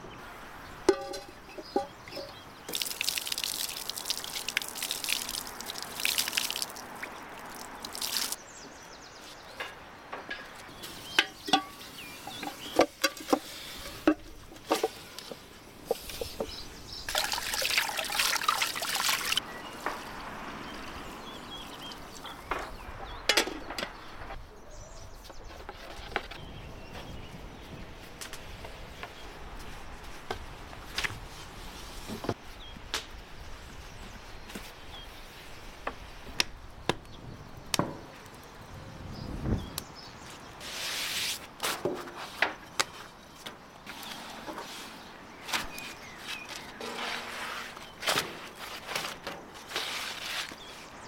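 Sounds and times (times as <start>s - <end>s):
pot knocks and clinks: 0.9s - 2.4s
water pouring into metal pot: 2.7s - 8.4s, 17.1s - 19.4s.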